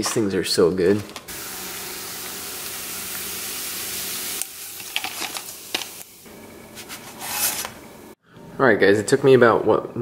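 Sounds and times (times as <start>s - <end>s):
bacon sizzling in frying pan: 1.3s - 6.3s.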